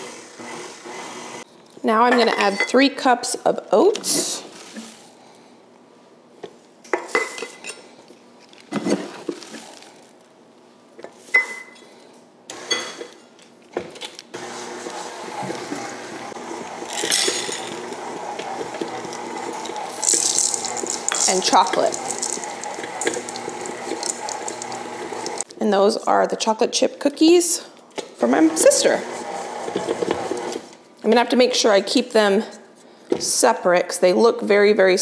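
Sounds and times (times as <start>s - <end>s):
stand mixer running: 0.0s - 1.4s, 14.4s - 25.4s, 28.5s - 30.6s.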